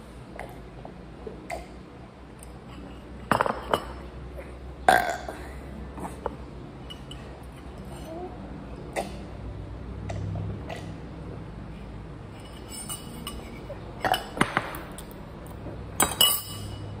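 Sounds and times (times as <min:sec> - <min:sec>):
spoon clinking in ceramic bowl: 0:16.0 - 0:16.9.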